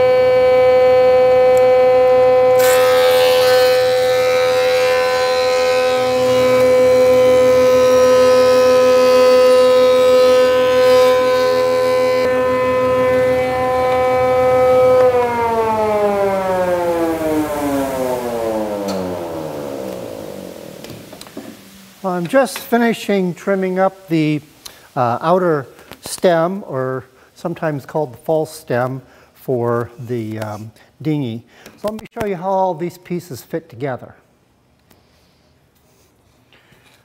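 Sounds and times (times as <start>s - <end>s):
planer cutting wood: 0.0s - 21.6s
thickness planer motor whine: 0.0s - 22.1s.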